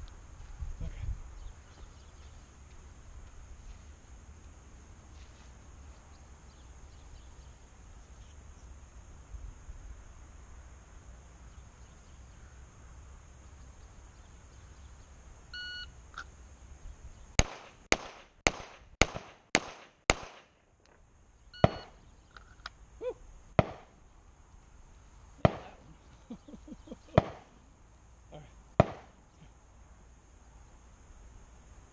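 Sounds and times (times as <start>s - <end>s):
pistol shots: 17.4s - 20.5s, 21.6s - 22.0s, 23.6s - 23.9s, 25.4s - 25.8s, 27.2s - 27.5s, 28.8s - 29.1s
shot timer beep: 21.6s - 21.9s.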